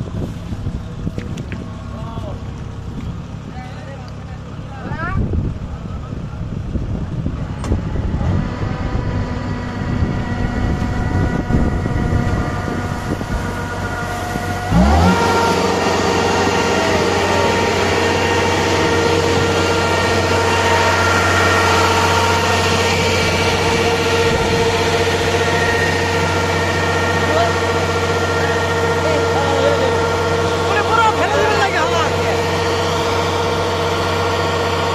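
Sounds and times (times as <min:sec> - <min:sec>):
farm machinery engines running: 0:00.0 - 0:34.9
louder engine revving up: 0:06.5 - 0:34.9
grain auger unloading: 0:07.1 - 0:34.9.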